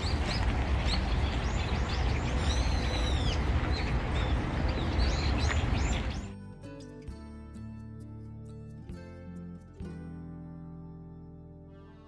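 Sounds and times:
birds chirping and calling: 0.0s - 6.3s.

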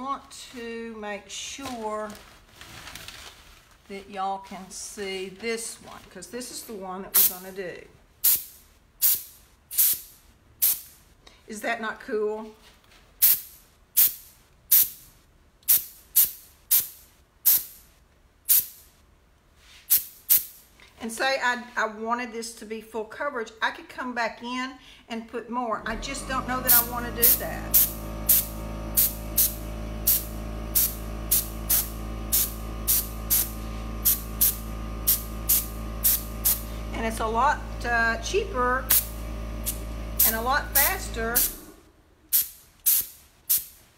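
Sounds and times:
compressed air hisses: 8.2s - 11.0s, 13.2s - 15.0s, 15.7s - 17.8s, 26.7s - 37.1s, 38.8s - 41.7s, 42.3s - 43.8s
steady hum: 25.8s - 42.8s.

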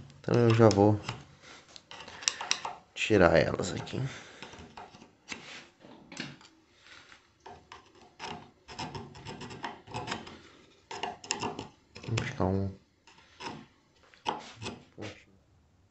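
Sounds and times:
hand file rasping on metal: 7.8s - 12.4s, 13.1s - 14.9s.

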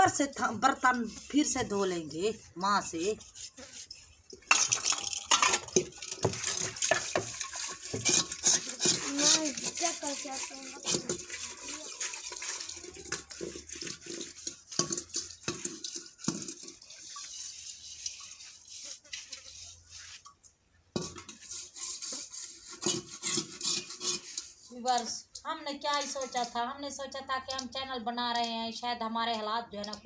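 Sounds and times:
metal pots clanking: 4.2s - 18.5s, 21.0s - 22.0s, 22.7s - 25.4s, 26.0s - 26.7s.

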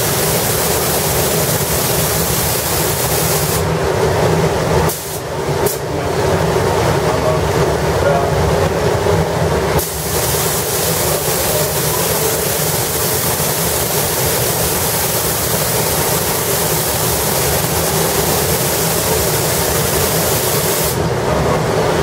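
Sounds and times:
spray gun hissing: 0.0s - 3.7s, 4.9s - 5.8s, 9.8s - 21.0s.

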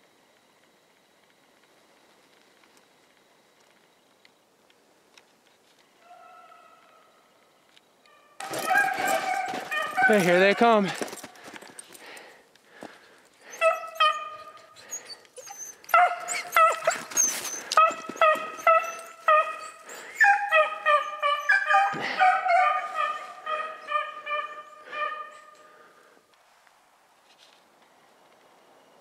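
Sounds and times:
dogs baying: 8.4s - 10.5s, 13.4s - 25.9s.

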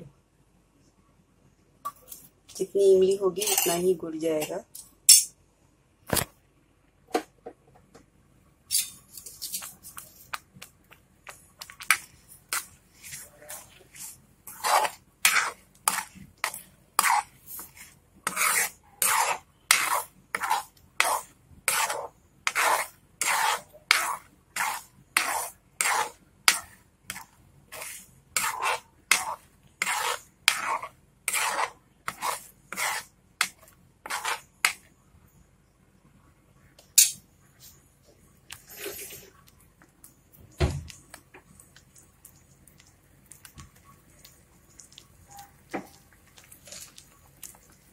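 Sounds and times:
metal ladle scraping a pan: 11.8s - 34.8s, 38.7s - 39.3s.

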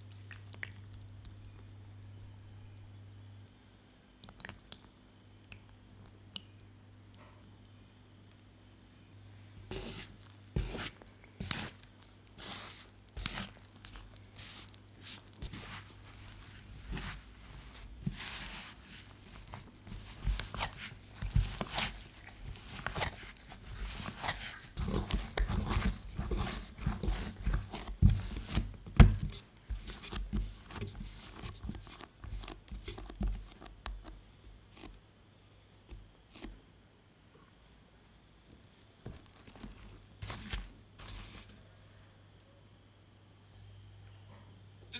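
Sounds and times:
dough squishing and slapping: 9.7s - 35.0s, 39.0s - 41.5s
dough thudding against bowl: 24.2s - 31.0s.

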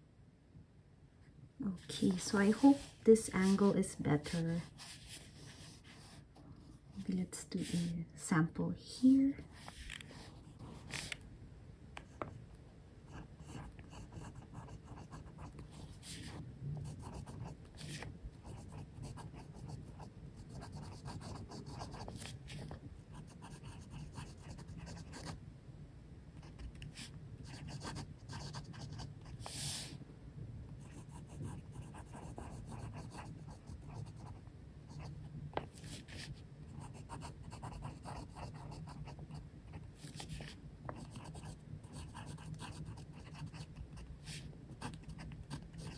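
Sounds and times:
faint low hum: 0.0s - 45.9s
fountain pen scratching on paper: 2.1s - 6.2s, 13.1s - 25.3s, 26.4s - 29.9s, 30.8s - 34.4s, 35.0s - 39.4s, 40.0s - 45.9s.

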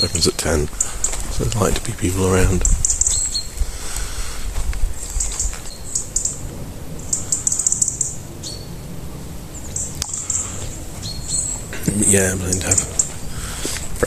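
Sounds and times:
small songbirds chirping: 0.0s - 14.0s.

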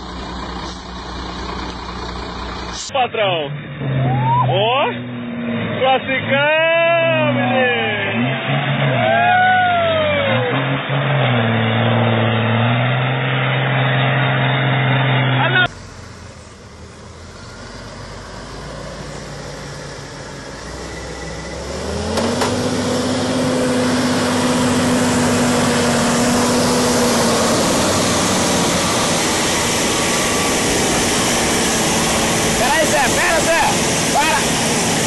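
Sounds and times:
heavy truck diesel engine: 0.0s - 35.0s
loud even rushing noise: 21.6s - 35.0s.

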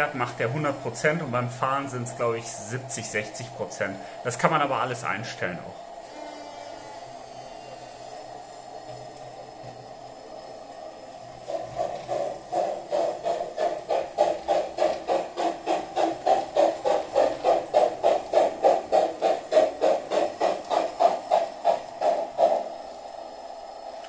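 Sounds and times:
model steam locomotive chuffing: 0.0s - 24.0s.

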